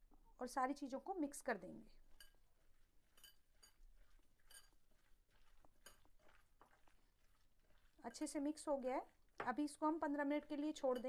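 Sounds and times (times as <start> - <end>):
hand kneading food squishing: 2.0 - 10.8
small clinks on glass bowl: 3.2 - 3.8, 4.4 - 4.8.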